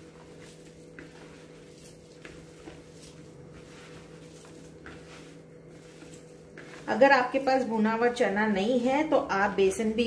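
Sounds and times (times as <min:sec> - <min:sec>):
hand squishing minced meat: 0:00.0 - 0:07.5
steady low hum: 0:00.0 - 0:10.0.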